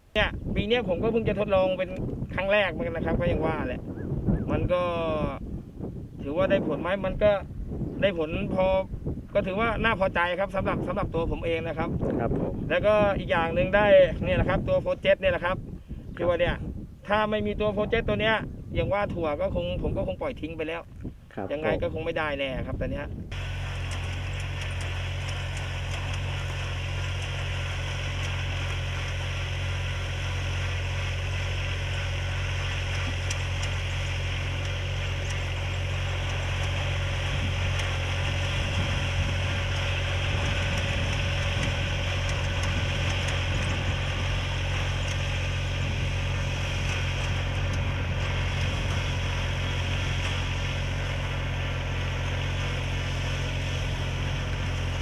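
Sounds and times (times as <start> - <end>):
sprayer engine running: 23.3 - 55.0.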